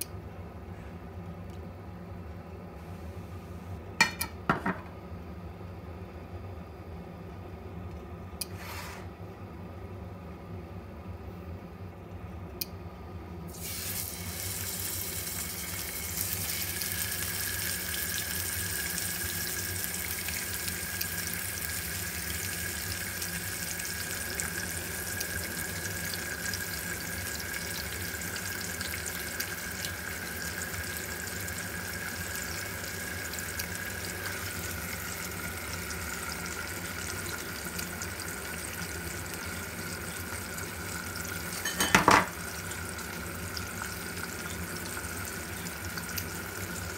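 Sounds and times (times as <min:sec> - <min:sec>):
fish sizzling in hot oil: 0:13.5 - 0:46.9.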